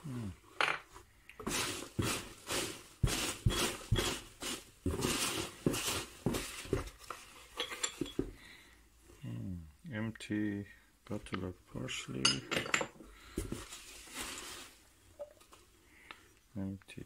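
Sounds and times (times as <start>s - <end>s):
rustling foam packing peanuts: 1.4s - 7.6s, 13.2s - 15.0s.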